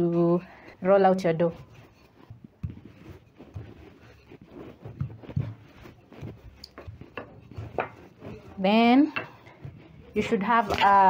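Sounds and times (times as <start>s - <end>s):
rolling pin rolling dough: 0.0s - 11.0s.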